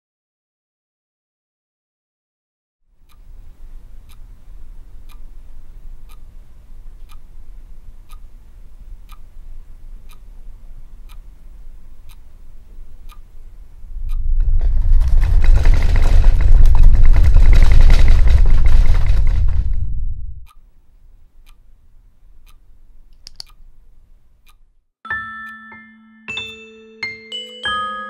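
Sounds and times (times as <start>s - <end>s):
clock ticking: 3.0s - 17.5s, 21.4s - 23.6s
low steady hum: 3.0s - 24.7s
loud rumbling noise: 13.6s - 20.5s.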